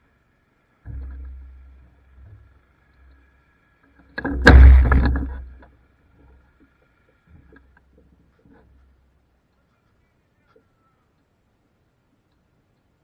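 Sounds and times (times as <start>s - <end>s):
faint low hum: 0.0s - 13.0s
loud thump with rumble: 4.2s - 5.6s.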